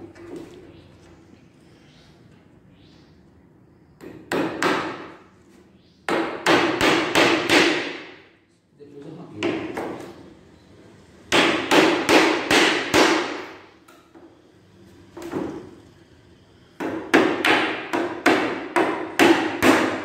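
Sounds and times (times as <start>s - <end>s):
hammer nailing wooden slats: 6.1s - 8.2s, 11.3s - 13.6s, 16.8s - 20.0s.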